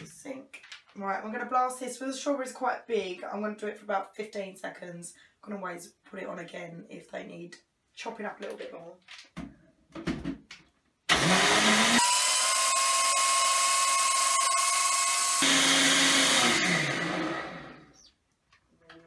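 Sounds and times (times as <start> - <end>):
blender motor whine crushing ice: 11.1 - 18.0.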